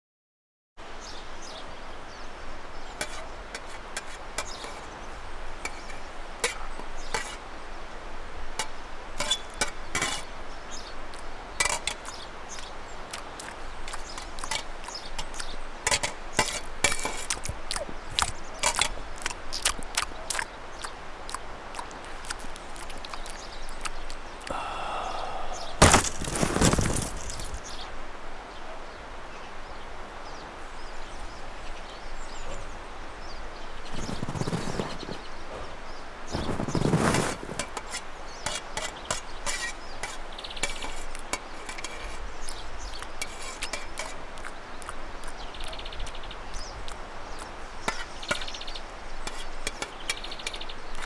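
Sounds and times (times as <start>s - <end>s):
steady hiss: 0.8s - 51.0s
sharp cracks and snaps: 11.1s - 24.5s.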